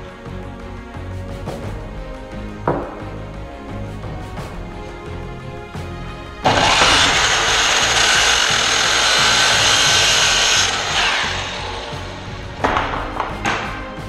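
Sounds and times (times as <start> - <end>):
knock: 2.6 - 3.1, 12.6 - 13.8
miter saw cutting wood: 6.4 - 12.8.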